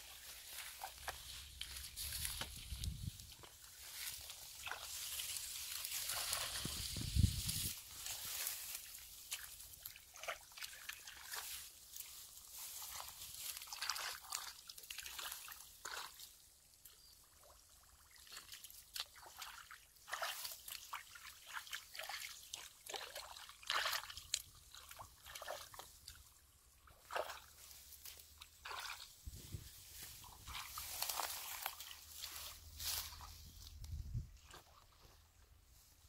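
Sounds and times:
wading through muddy water: 0.0s - 35.7s.

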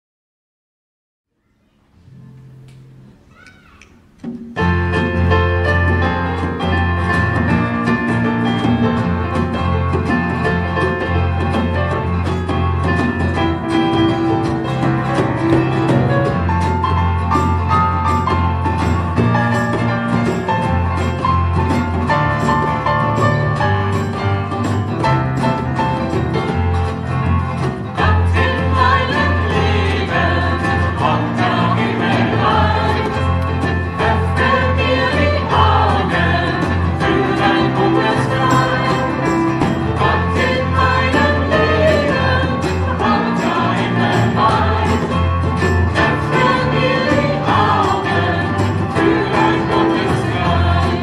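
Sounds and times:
keyboard: 1.6s - 51.0s
acoustic guitars: 4.3s - 51.0s
several voices singing together: 27.9s - 51.0s.

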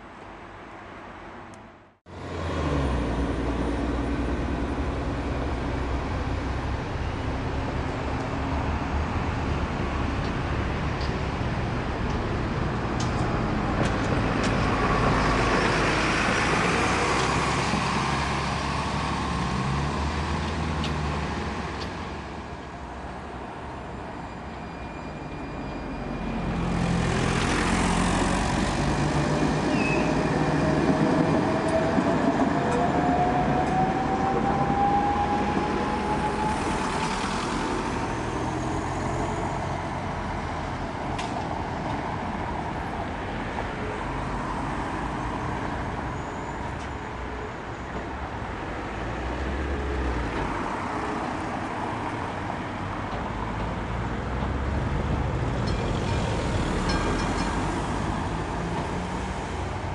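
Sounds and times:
diesel bus driving past: 0.0s - 59.9s
street traffic: 0.0s - 59.9s
tram passing: 0.0s - 59.9s
long rising whine: 28.4s - 39.4s.

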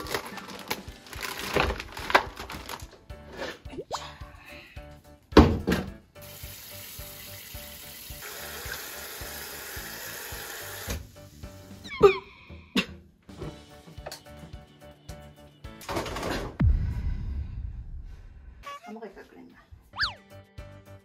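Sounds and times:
light background music: 0.0s - 16.6s, 18.6s - 21.0s
faucet spray running water: 6.2s - 11.8s.

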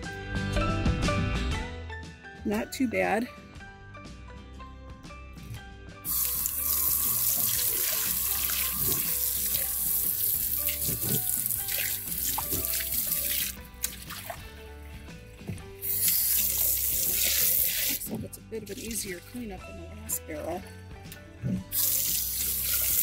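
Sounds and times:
hose nozzle spraying water: 6.1s - 18.2s, 21.7s - 23.0s.

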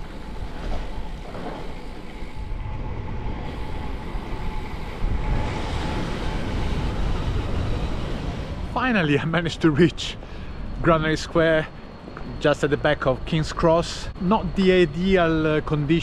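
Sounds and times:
faint steady whine: 0.0s - 16.0s
wind on microphone: 2.1s - 8.7s.

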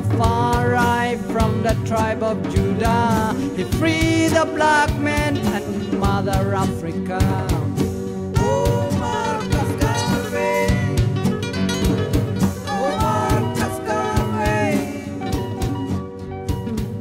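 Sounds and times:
steady drum beat: 0.0s - 17.0s
gliding singing voice: 8.4s - 11.0s, 12.7s - 15.5s.

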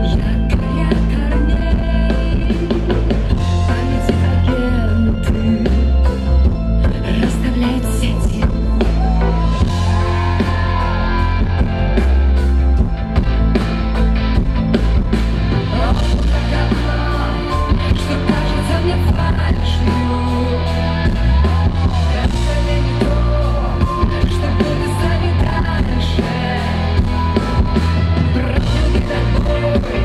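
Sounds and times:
woman singing into microphone: 0.0s - 6.1s, 6.8s - 9.2s, 15.7s - 21.2s, 21.8s - 27.1s, 28.3s - 30.0s
live rock band playing: 0.0s - 30.0s.

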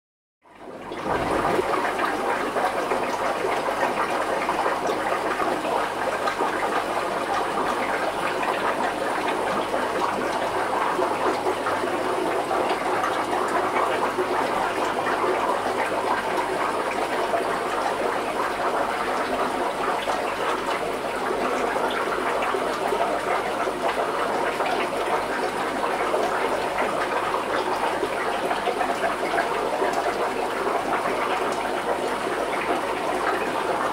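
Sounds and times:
running water rushing: 0.7s - 4.8s.

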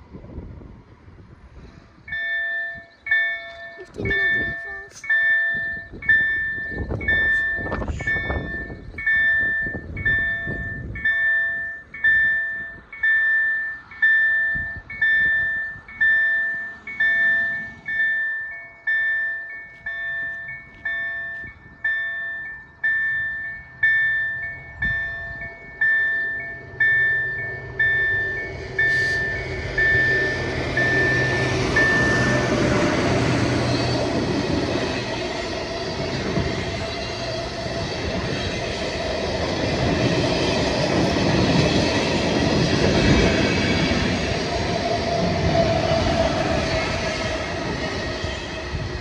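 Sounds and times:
approaching train: 0.0s - 49.0s
level crossing bell ringing: 2.1s - 32.5s.

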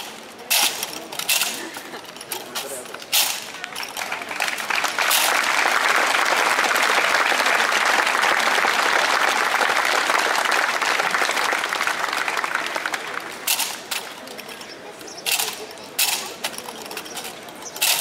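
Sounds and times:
crowd applauding: 3.5s - 13.5s.

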